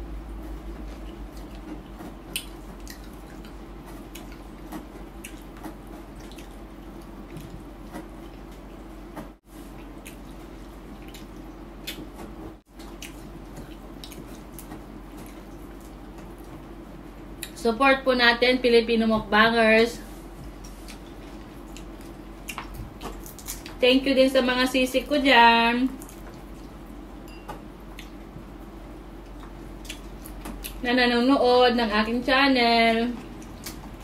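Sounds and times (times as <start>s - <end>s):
steady low hum: 0.0s - 34.0s
wet chewing clicks and smacks: 1.0s - 8.6s, 9.8s - 12.1s, 12.7s - 16.6s, 20.6s - 23.8s, 26.0s - 26.9s, 27.9s - 28.3s, 29.2s - 30.8s, 33.3s - 34.0s.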